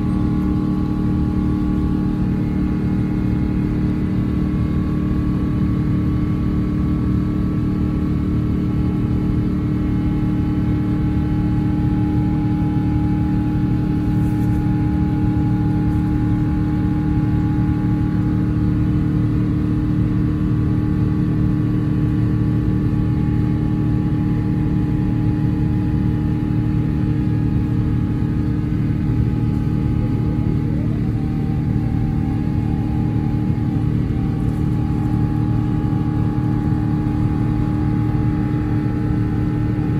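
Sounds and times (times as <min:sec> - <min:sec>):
airliner cabin rumble: 0:00.0 - 0:39.9
steady humming tones: 0:00.0 - 0:39.9.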